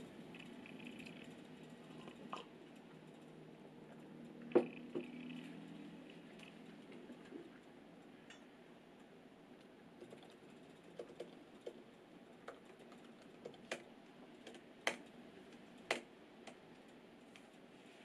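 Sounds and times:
laptop keyboard key presses: 12.5s - 15.1s, 15.8s - 16.6s.

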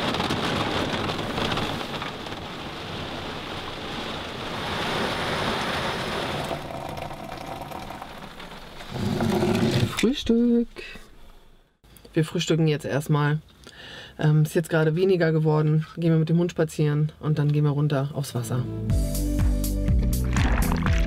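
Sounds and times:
heavy rain pouring: 0.0s - 10.1s.

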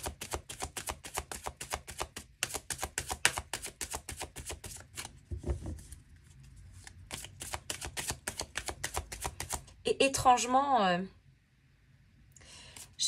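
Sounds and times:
cards shuffling: 0.0s - 9.7s.

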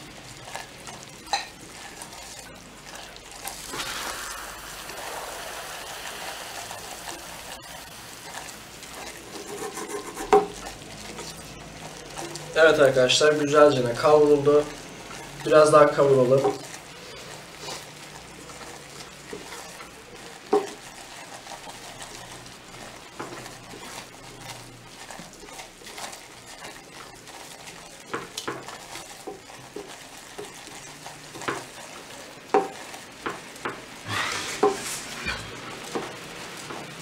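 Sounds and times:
roux sizzling in a saucepan: 0.0s - 37.0s
spatula knocking and scraping pan: 9.0s - 10.7s, 32.5s - 33.9s, 34.5s - 34.9s.

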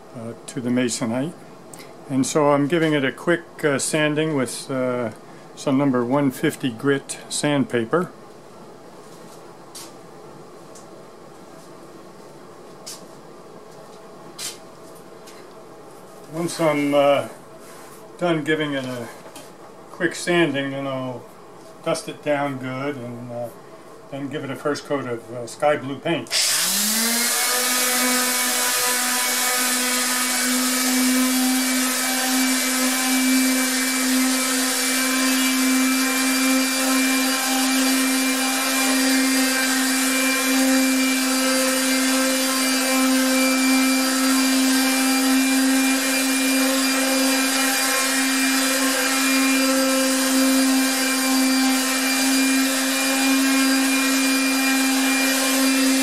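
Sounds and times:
electric palm sander running: 26.3s - 56.0s.

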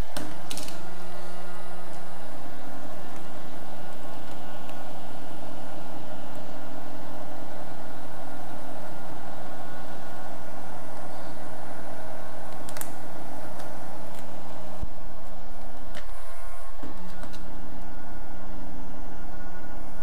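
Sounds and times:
heat gun fan blowing: 0.0s - 20.0s.

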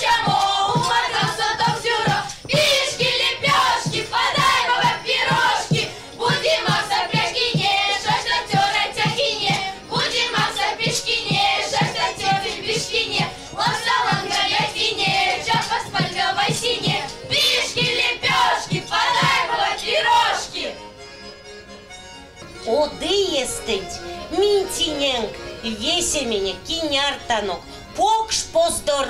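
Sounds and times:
hands clapping a steady beat: 0.0s - 19.7s
girls singing together: 0.0s - 20.8s.

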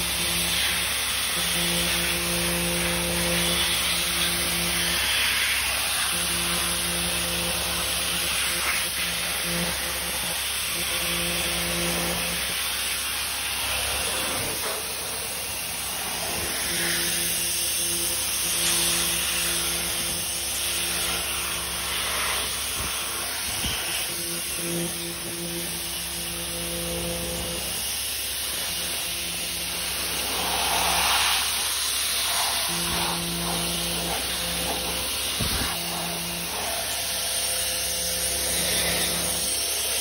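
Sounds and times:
pressure washer spraying metal: 0.0s - 40.0s
low hum: 10.8s - 40.0s.

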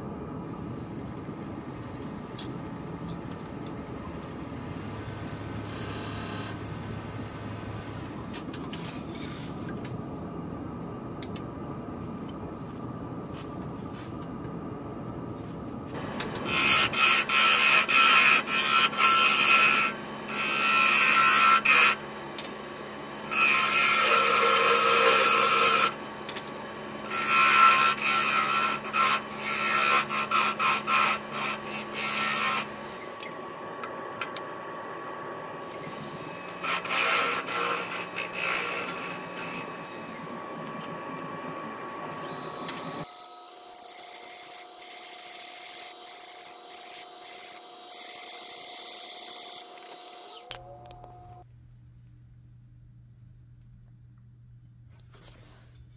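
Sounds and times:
turning tool scraping wood: 35.8s - 40.3s.

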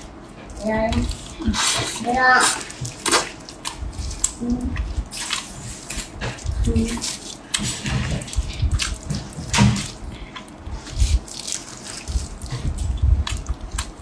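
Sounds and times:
wet sticky crackles: 0.5s - 14.0s
soft low thumps: 12.1s - 13.5s.

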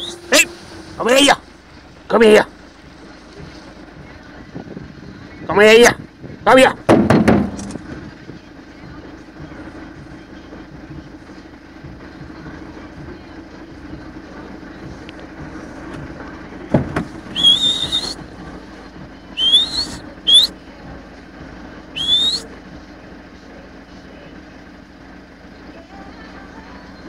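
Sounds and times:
person whistling: 0.0s - 0.3s, 17.4s - 18.2s, 19.4s - 20.5s, 22.0s - 22.5s
steady low hum: 0.0s - 27.0s
sharp knock: 6.9s - 7.8s.

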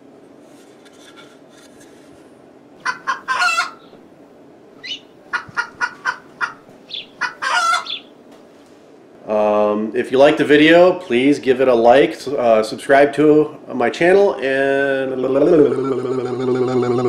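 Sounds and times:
chicken clucking: 2.8s - 3.8s, 4.8s - 8.0s.

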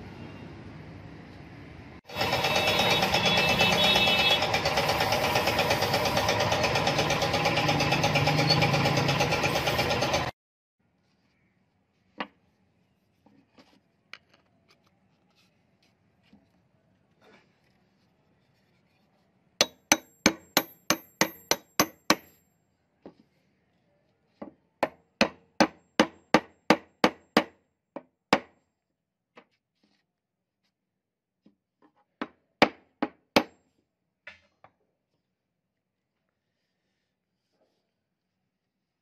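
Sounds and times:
hammer knocking on hard surface: 19.6s - 22.3s, 24.4s - 28.5s.

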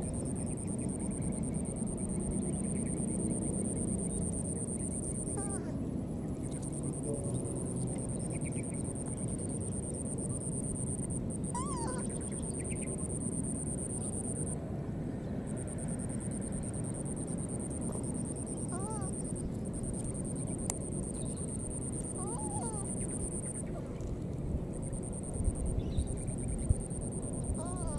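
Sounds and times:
insects chirring: 0.0s - 5.7s, 6.4s - 14.6s, 15.4s - 27.9s
baby monkey squeaks: 11.6s - 12.1s, 22.2s - 23.0s.

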